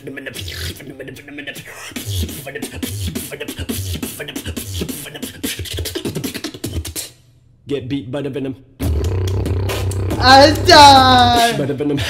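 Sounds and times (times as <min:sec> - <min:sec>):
beatbox hi-hat and snare: 0:00.0 - 0:07.2, 0:08.8 - 0:11.6
vocal effects: 0:00.0 - 0:07.2, 0:10.1 - 0:11.7
beatbox bass kicks: 0:02.0 - 0:07.2, 0:08.8 - 0:11.6.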